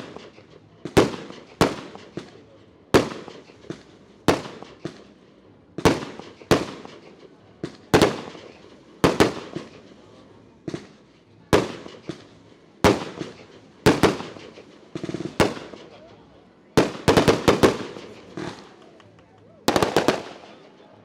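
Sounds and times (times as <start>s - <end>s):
firework shells bursting: 0.0s - 2.4s, 11.6s - 16.2s, 16.8s - 20.8s.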